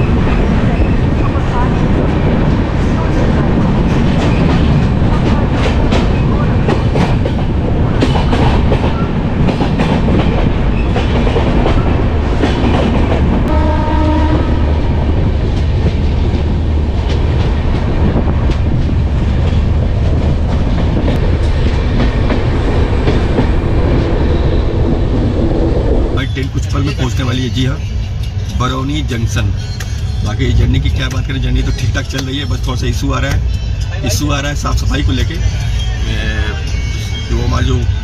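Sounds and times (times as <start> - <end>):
train rumble: 0.0 - 38.0
train horn: 13.5 - 14.8.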